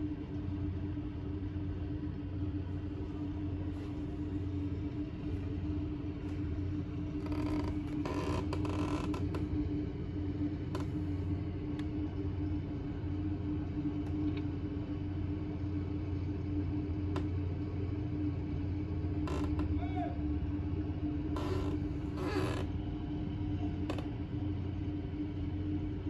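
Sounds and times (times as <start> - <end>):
engine humming: 0.0 - 25.9.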